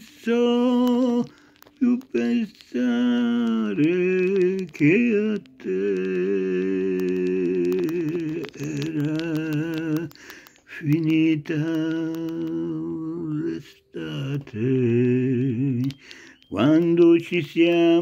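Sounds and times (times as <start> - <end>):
elderly man singing: 0.0 - 18.0
short breaths: 10.1 - 10.8, 16.0 - 16.4.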